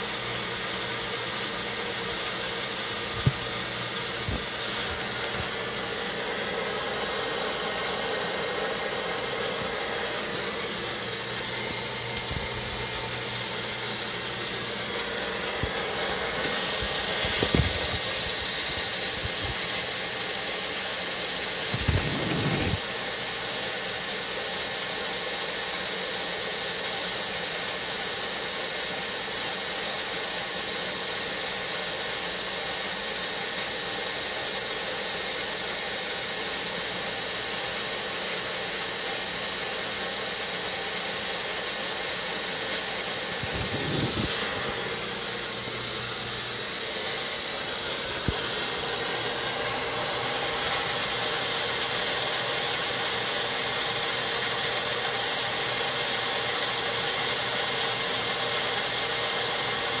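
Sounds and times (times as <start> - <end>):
steady hum: 0.0 - 23.8, 39.5 - 57.6
high-pitched hiss: 0.0 - 60.0.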